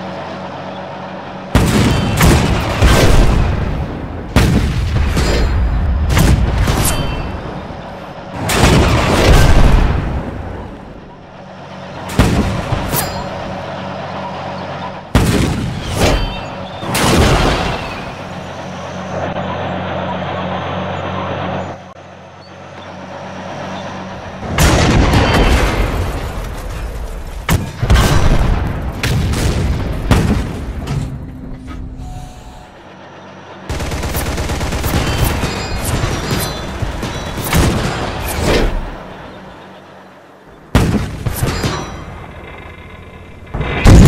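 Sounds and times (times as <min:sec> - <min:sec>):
low engine drone: 0:00.0 - 0:44.0
explosions: 0:27.5 - 0:30.9, 0:43.6 - 0:44.0
rapid gunfire: 0:33.7 - 0:38.3
cannon shots: 0:43.6 - 0:44.0.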